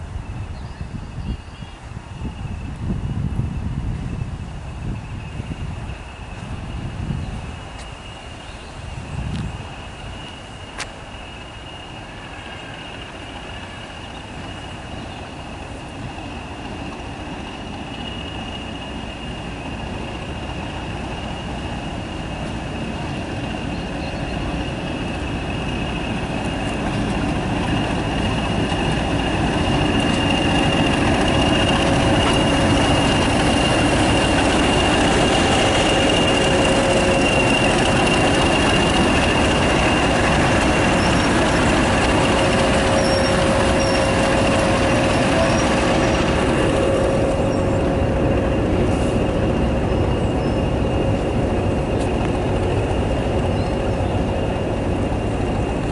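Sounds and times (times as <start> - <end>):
diesel locomotive engine: 0.0 - 55.9
high turbo whistle: 4.8 - 55.9.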